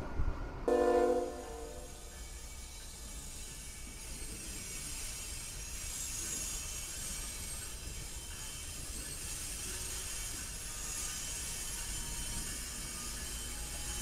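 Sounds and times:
wheels hissing on rail: 0:00.0 - 0:14.0.

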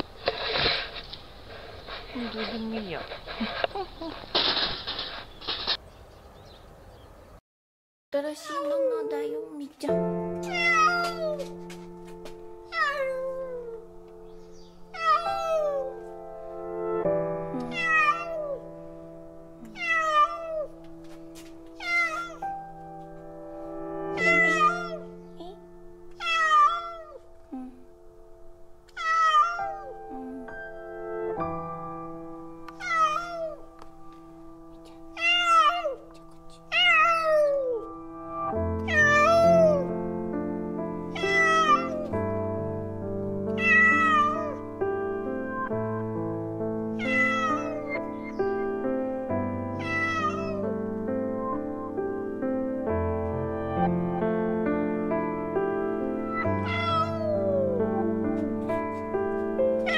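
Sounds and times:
cat meowing: 0:10.5 - 0:11.5, 0:12.7 - 0:13.8, 0:14.9 - 0:16.0, 0:17.5 - 0:18.6, 0:19.6 - 0:20.7, 0:21.8 - 0:22.4, 0:24.2 - 0:27.2, 0:28.9 - 0:30.0, 0:32.7 - 0:33.7, 0:35.1 - 0:37.9, 0:38.8 - 0:39.9, 0:41.1 - 0:42.1, 0:43.6 - 0:44.6, 0:46.9 - 0:48.4, 0:49.8 - 0:50.7, 0:56.3 - 0:57.8
music of sustained chords: 0:11.4 - 0:19.8, 0:22.4 - 0:26.3, 0:27.1 - 0:29.0, 0:29.6 - 0:32.8, 0:33.5 - 0:43.6, 0:44.6 - 0:50.0, 0:50.6 - 0:59.9.

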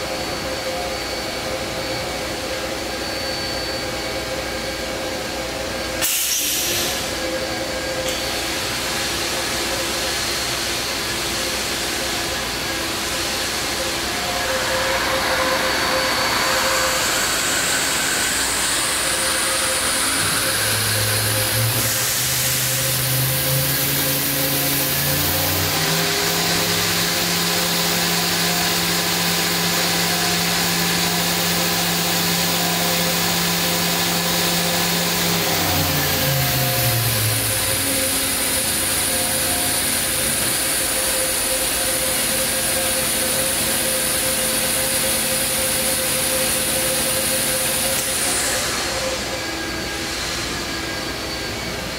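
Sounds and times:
machine spindle whine: 0:00.0 - 0:51.9.

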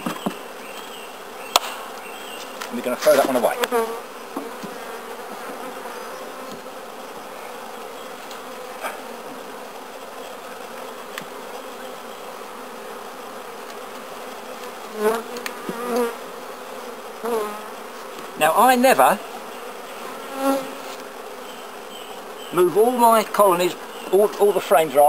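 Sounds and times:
bees buzzing: 0:00.0 - 0:25.0
light knocks of hive frames: 0:01.5 - 0:04.8, 0:06.4 - 0:06.7, 0:15.1 - 0:16.2.

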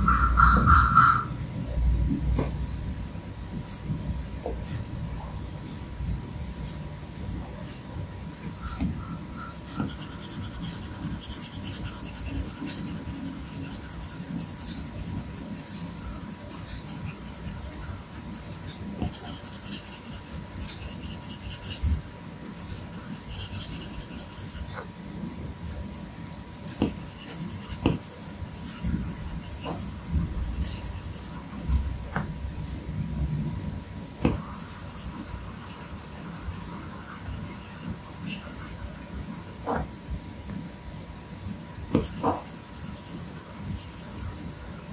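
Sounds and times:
stylus scratching glass screen: 0:00.0 - 0:01.4, 0:09.4 - 0:24.9, 0:26.3 - 0:32.0, 0:34.3 - 0:39.8, 0:42.0 - 0:44.9.

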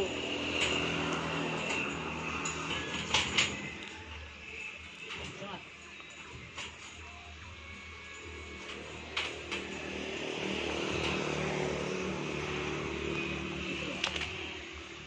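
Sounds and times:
vehicle engine passing by: 0:00.0 - 0:03.9, 0:08.7 - 0:15.0.

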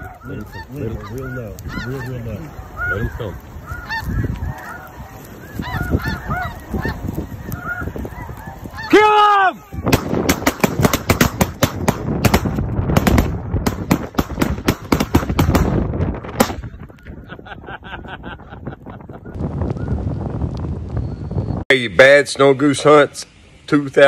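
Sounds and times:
geese honking: 0:00.0 - 0:11.7
shotgun fire: 0:09.9 - 0:15.8.

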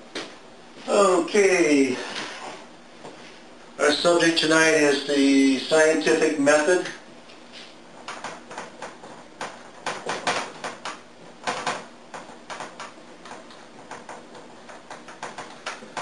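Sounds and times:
marker writing on whiteboard: 0:08.0 - 0:16.0.

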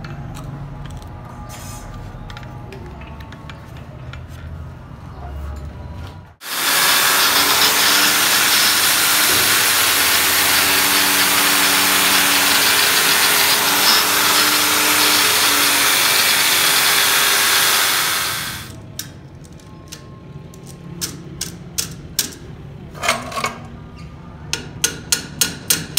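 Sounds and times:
angle grinder grinding metal: 0:06.4 - 0:18.7.

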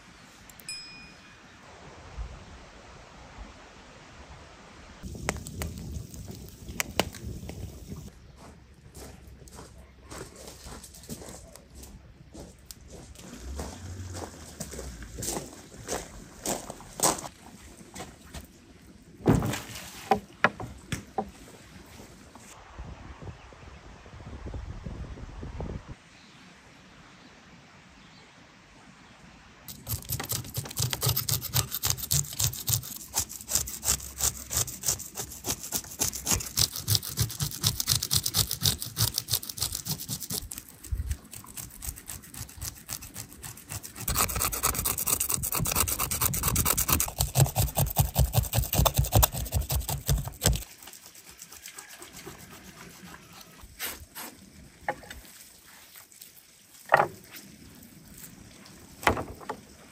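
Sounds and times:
knife scraping fish scales: 0:29.7 - 0:54.3.

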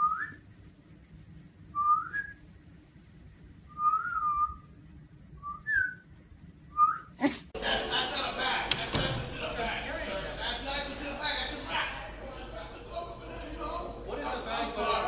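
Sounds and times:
person whistling: 0:03.7 - 0:04.7, 0:05.4 - 0:06.0.

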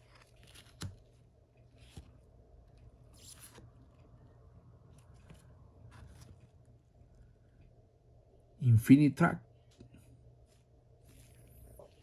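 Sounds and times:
trading cards handled: 0:00.0 - 0:02.4.

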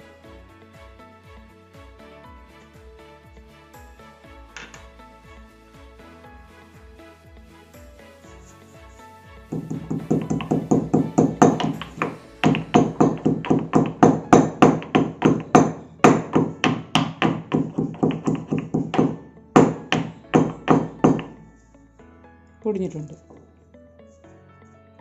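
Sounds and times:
pestle pounding in stone mortar: 0:09.6 - 0:21.4.

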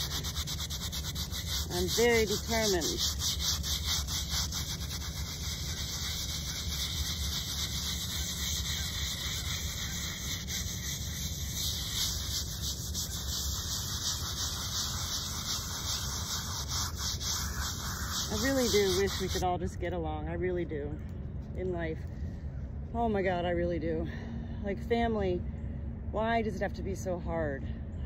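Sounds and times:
brush scrubbing stone: 0:00.0 - 0:19.5.

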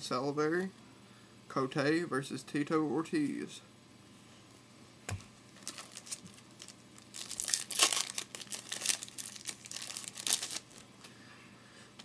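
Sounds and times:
plastic wrapper crinkling: 0:05.5 - 0:10.9.

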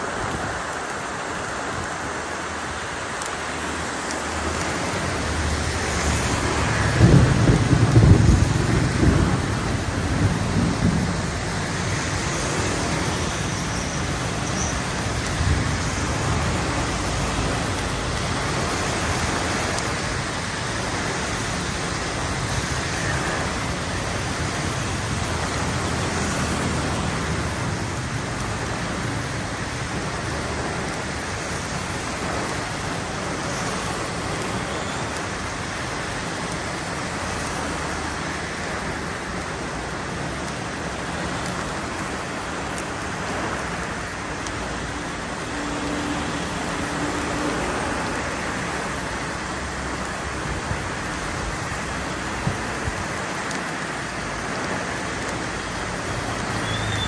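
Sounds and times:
heavy rain pouring on road: 0:00.0 - 0:57.0
wet tyre hiss of vehicles: 0:00.0 - 0:57.0
low rumble of thunder: 0:06.6 - 0:12.6.

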